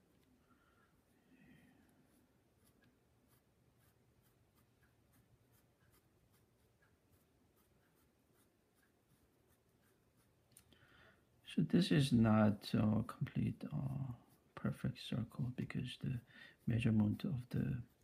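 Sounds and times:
pencil scratching on paper: 2.1s - 10.5s, 13.2s - 18.0s.

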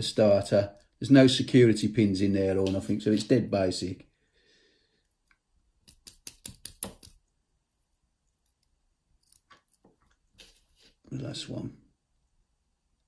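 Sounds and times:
small metallic clicks: 5.0s - 7.3s, 8.3s - 10.2s.

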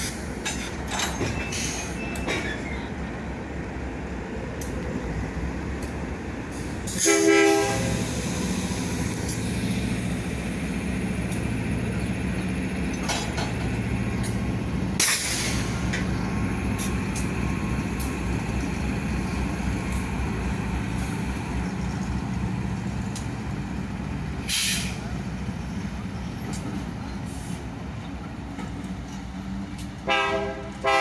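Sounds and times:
diesel locomotive engine hum: 0.0s - 31.0s
air brake hissing: 1.5s - 2.0s, 6.5s - 9.5s, 15.0s - 15.9s, 24.4s - 25.1s.

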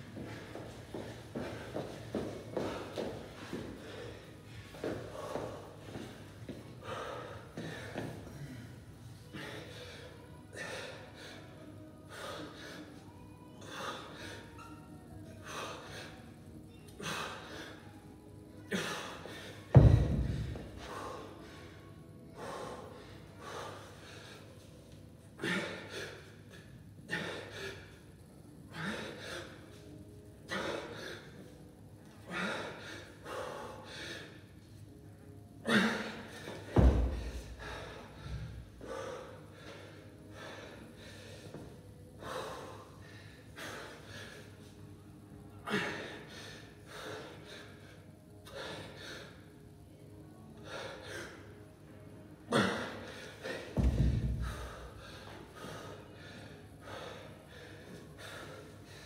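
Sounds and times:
man breathing hard: 0.0s - 14.6s, 20.3s - 24.8s, 35.7s - 44.7s, 45.5s - 49.5s, 52.5s - 59.0s
kettlebell thud on rubber floor: 19.8s - 20.4s.

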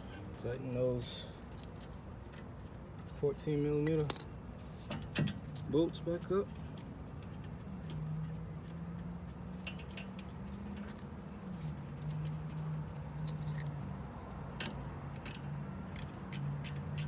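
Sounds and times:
wrench clicking: 14.6s - 17.0s.

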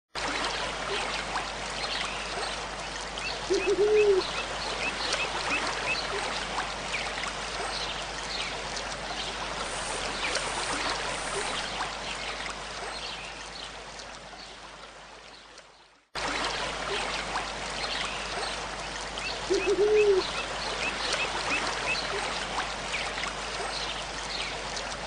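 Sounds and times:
waterfall rushing: 9.5s - 11.8s.

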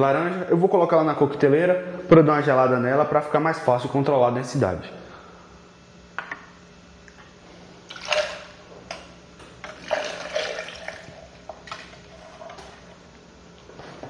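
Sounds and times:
juice pouring into metal shaker: 7.9s - 8.5s, 9.6s - 12.6s.

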